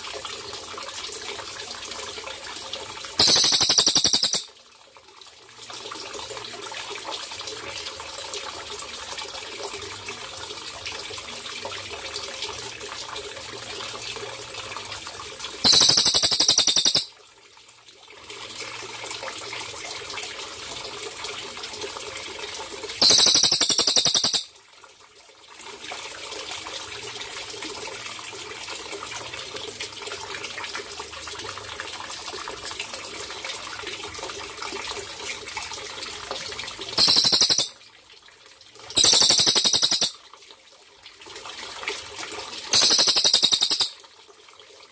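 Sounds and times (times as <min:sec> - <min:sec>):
trickling water: 0:00.0 - 0:44.9.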